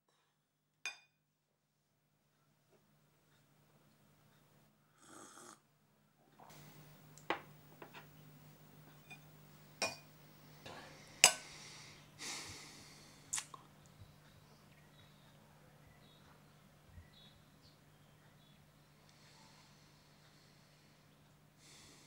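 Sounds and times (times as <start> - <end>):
person breathing heavily: 10.6 - 13.3, 19.2 - 22.0.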